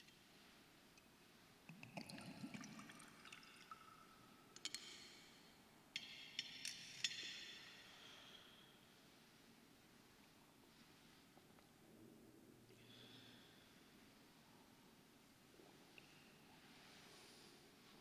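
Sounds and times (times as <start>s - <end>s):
water poured into metal cup: 1.7s - 4.1s.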